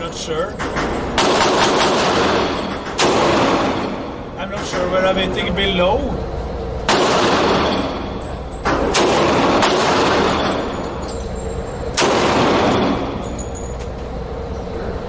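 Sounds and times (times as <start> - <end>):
pistol shots with reverb: 1.2 - 4.0, 6.9 - 7.9, 8.9 - 10.5, 12.0 - 13.0.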